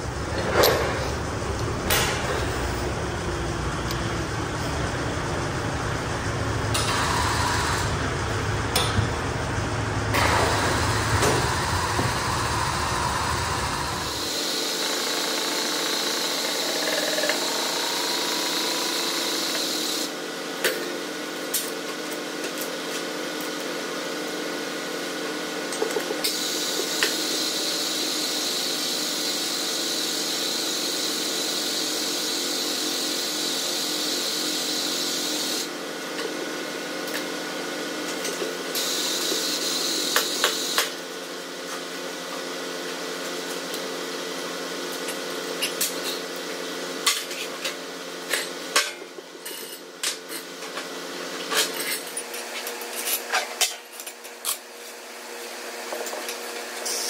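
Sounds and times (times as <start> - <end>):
hydraulic pump running: 0.0 - 20.2, 26.1 - 41.2.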